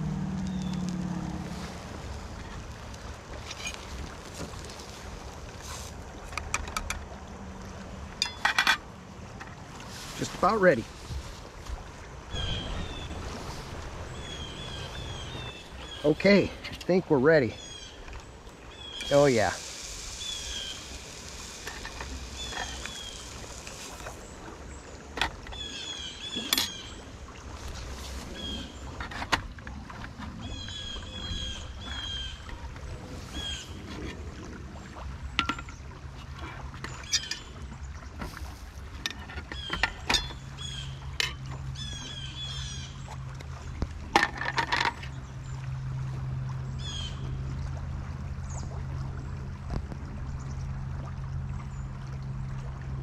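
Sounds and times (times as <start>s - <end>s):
river rushing: 0.0s - 37.9s
small birds chirping: 12.3s - 21.2s, 22.1s - 27.1s.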